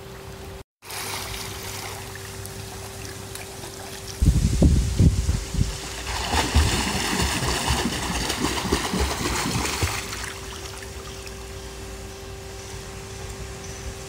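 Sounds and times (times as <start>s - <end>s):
swimmer splashing in pool: 0.8s - 4.2s, 5.9s - 10.9s.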